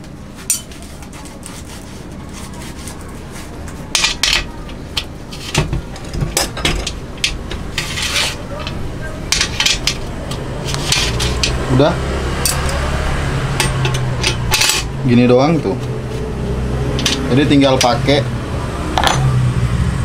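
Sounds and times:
metal frame clinking and knocking: 0:05.4 - 0:10.1, 0:17.0 - 0:18.0.

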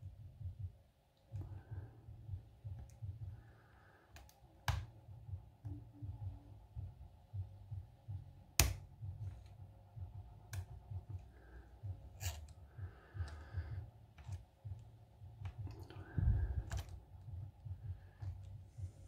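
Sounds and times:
pick scraping in lock: 0:12.1 - 0:12.6.

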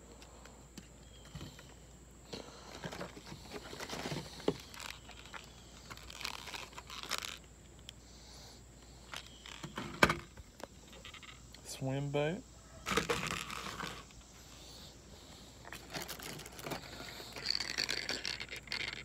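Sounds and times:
packaging rustling and crinkling: 0:02.7 - 0:07.5, 0:12.9 - 0:14.1, 0:15.7 - 0:19.0.

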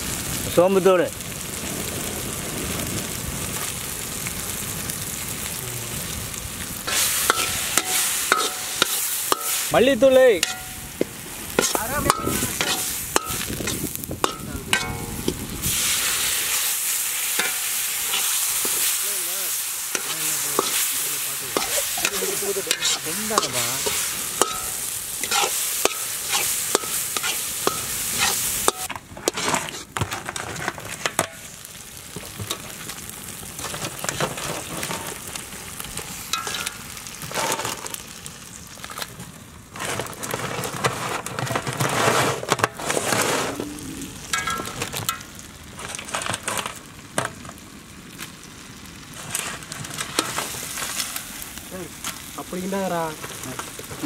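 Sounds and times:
food sizzling: 0:00.0 - 0:54.0
spatula scraping iron pan: 0:06.9 - 0:09.7, 0:10.4 - 0:10.8, 0:11.5 - 0:16.3, 0:17.3 - 0:18.9, 0:19.9 - 0:31.4, 0:36.4 - 0:36.8, 0:39.8 - 0:43.6.

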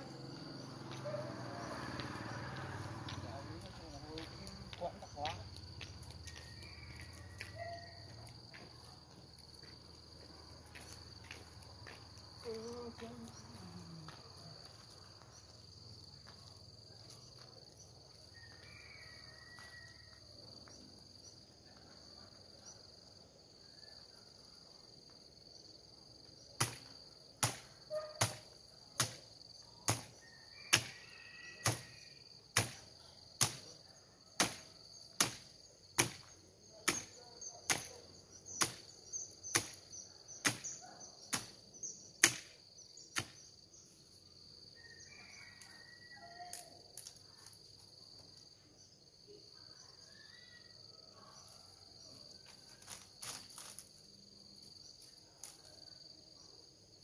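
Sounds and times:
insect chorus: 0:00.0 - 0:57.0
chopping bamboo: 0:26.6 - 0:26.8, 0:27.4 - 0:28.4, 0:29.0 - 0:29.2, 0:29.9 - 0:30.1, 0:30.7 - 0:31.0, 0:31.6 - 0:31.9, 0:32.6 - 0:32.8, 0:33.4 - 0:33.7, 0:34.4 - 0:37.1, 0:37.7 - 0:37.9, 0:38.6 - 0:38.8, 0:39.5 - 0:39.8, 0:40.4 - 0:41.6, 0:42.2 - 0:42.5, 0:43.1 - 0:43.4.

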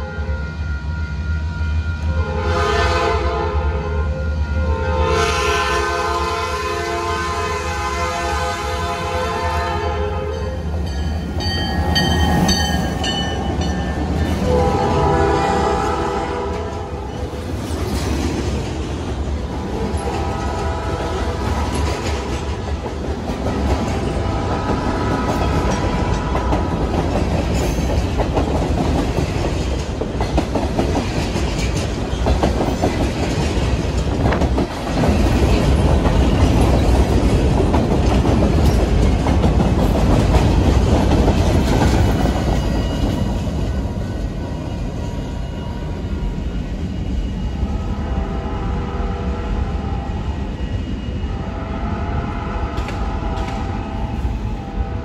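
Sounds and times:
train horn blasts: 0:00.0 - 0:10.6, 0:14.4 - 0:17.1, 0:19.7 - 0:21.6, 0:24.0 - 0:26.8, 0:47.6 - 0:55.0
train cars rumbling past: 0:00.0 - 0:55.0.

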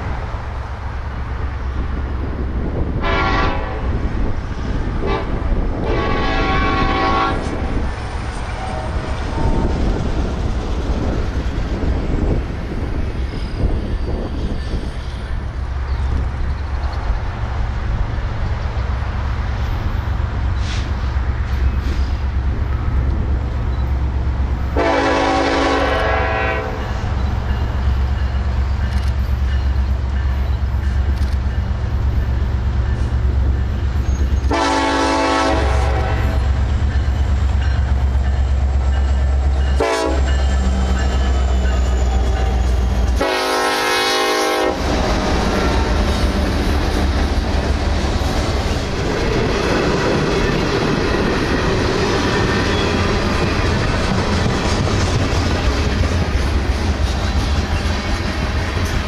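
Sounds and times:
diesel train engine rumble: 0:00.0 - 0:59.0
locomotive horn blasts: 0:03.0 - 0:04.0, 0:05.0 - 0:07.6, 0:24.8 - 0:27.0, 0:34.5 - 0:36.6, 0:39.7 - 0:40.4, 0:43.1 - 0:44.9.

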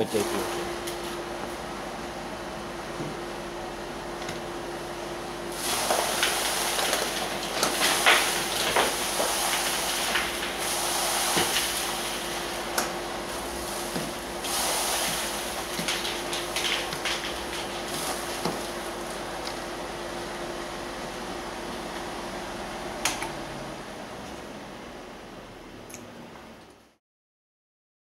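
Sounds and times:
dust extractor humming: 0:00.0 - 0:26.8
push broom sweeping concrete: 0:05.5 - 0:19.2
hose sucking in wood chips: 0:05.5 - 0:19.9.

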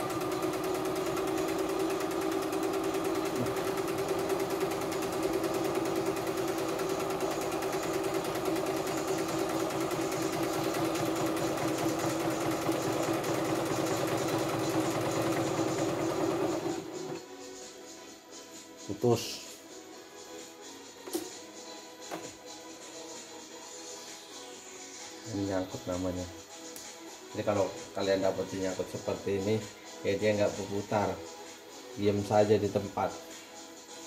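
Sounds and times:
sewing machine running: 0:00.0 - 0:17.2.

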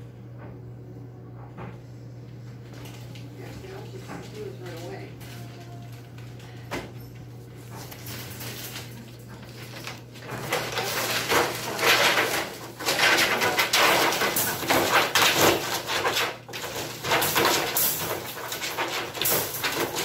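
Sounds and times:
dog rattling wire crate: 0:07.0 - 0:20.0.

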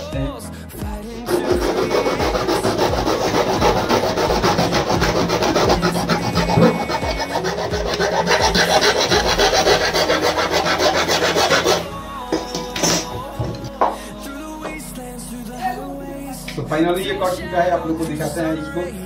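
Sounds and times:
hacksaw sawing through plastic: 0:01.2 - 0:13.6.

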